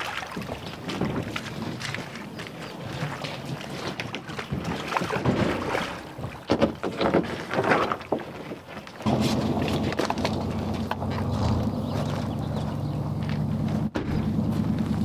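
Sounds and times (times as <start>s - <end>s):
water rushing: 0.0s - 6.6s, 9.0s - 12.8s
kayaks knocking: 0.0s - 14.8s.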